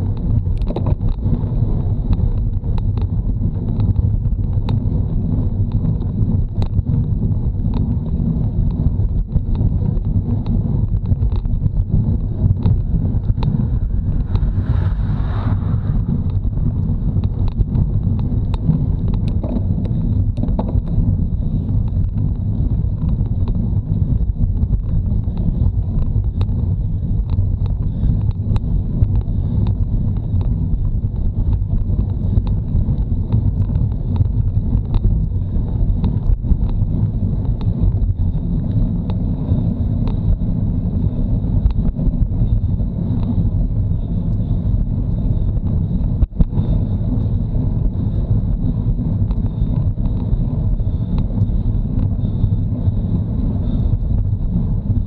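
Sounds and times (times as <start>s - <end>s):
wind buffeting microphone: 0.0s - 55.0s
small ticks: 0.1s - 1.3s, 7.6s - 11.7s, 17.2s - 22.4s, 24.5s - 26.6s, 27.2s - 40.4s.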